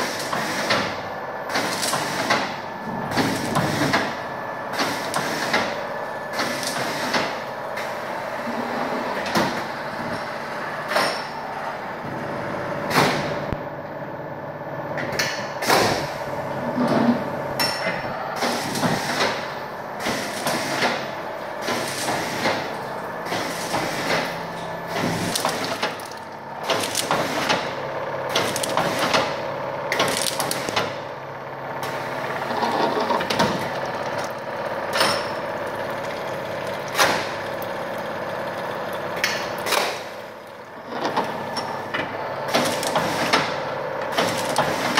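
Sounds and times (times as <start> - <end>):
machine hum: 0.0 - 44.9.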